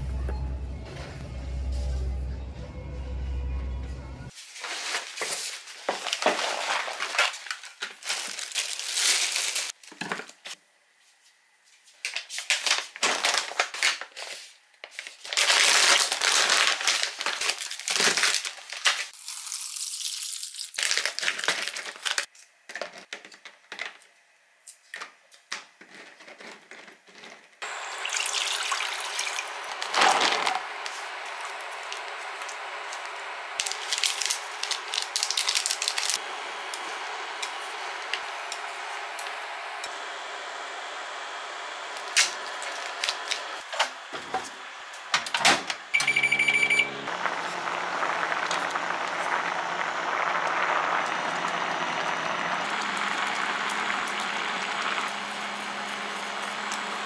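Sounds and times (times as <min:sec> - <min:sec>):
plastic packaging crinkling and tearing: 0:04.4 - 0:10.5, 0:12.1 - 0:22.4, 0:28.4 - 0:31.5, 0:33.6 - 0:36.2, 0:42.0 - 0:44.0.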